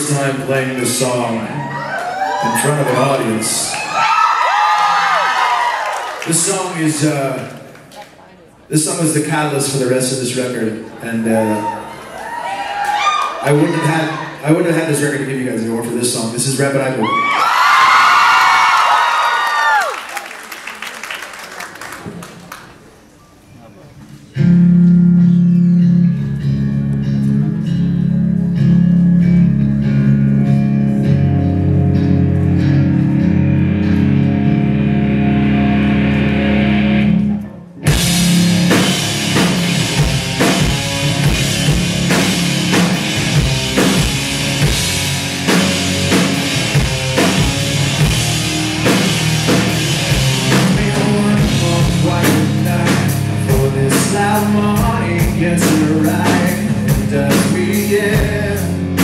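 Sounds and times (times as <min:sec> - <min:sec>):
electric guitar chords: 0:24.3 - 0:59.0
rock band with drums: 0:24.3 - 0:59.0.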